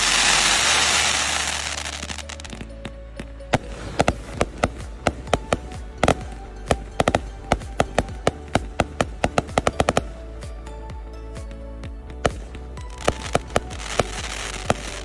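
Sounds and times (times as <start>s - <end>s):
firework cake popping: 0.0s - 2.6s, 12.3s - 15.0s.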